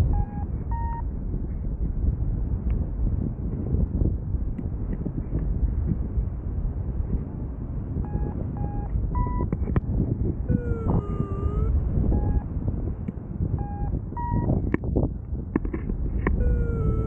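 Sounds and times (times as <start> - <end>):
long electronic tone: 0.0 - 1.0, 8.0 - 9.5, 10.5 - 12.5, 13.6 - 14.5, 16.4 - 17.0
short electronic beeps: 0.0 - 1.0, 8.0 - 9.5, 10.5 - 12.5, 13.6 - 14.5, 16.4 - 17.0
wind rushing over microphone: 0.0 - 17.0.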